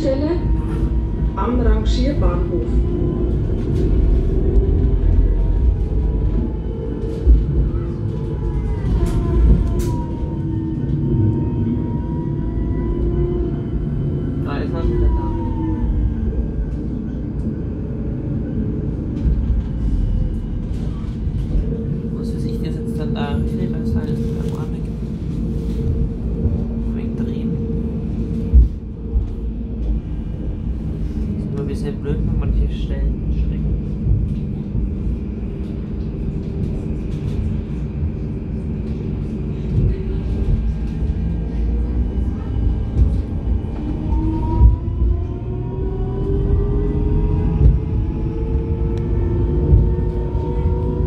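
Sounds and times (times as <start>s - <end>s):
tram rumbling along track: 0.0s - 51.0s.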